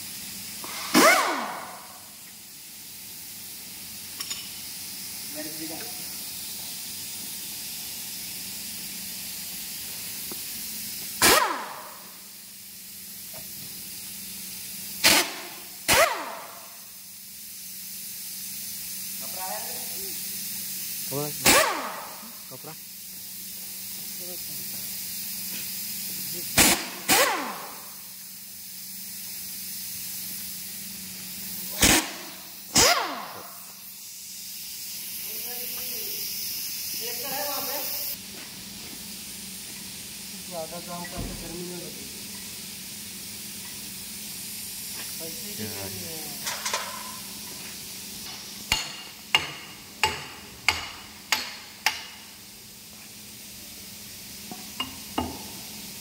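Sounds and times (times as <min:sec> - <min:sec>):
pneumatic impact wrench bursts: 0:00.0 - 0:38.2, 0:41.0 - 0:52.6.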